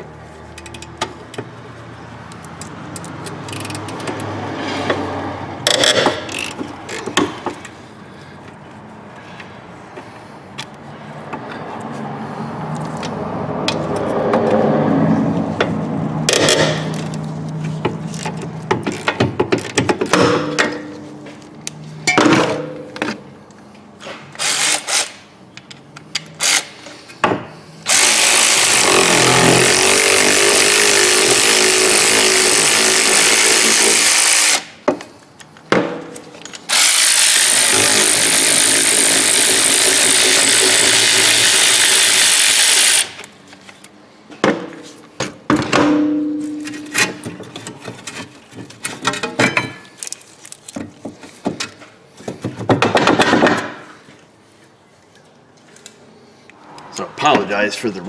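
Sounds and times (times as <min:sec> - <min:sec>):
ratchet clicking: 0:02.4 - 0:04.2.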